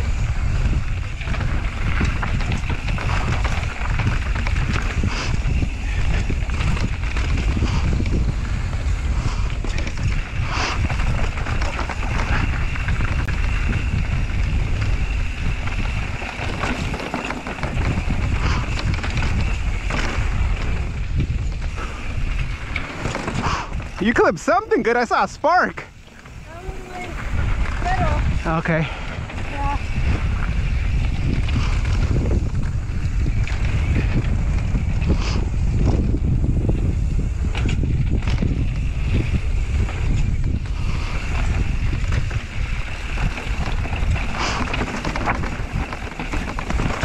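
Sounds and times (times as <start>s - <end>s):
wind buffeting microphone: 0.0s - 47.0s
bike clattering on rocks: 0.2s - 24.0s, 37.4s - 47.0s.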